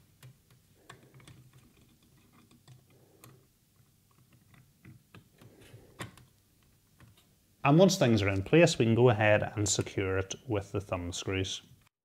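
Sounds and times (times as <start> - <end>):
faint clicks and tapping: 0.0 - 7.3.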